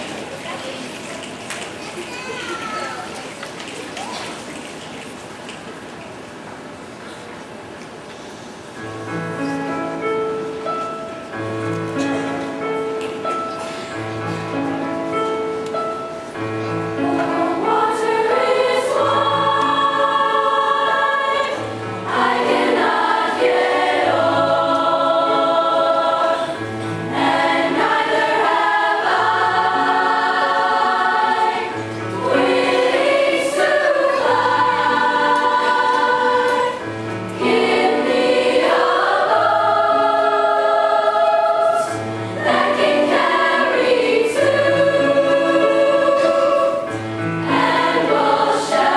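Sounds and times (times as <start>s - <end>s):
piano low notes: 8.2s - 48.9s
choir singing in harmony: 16.8s - 48.9s.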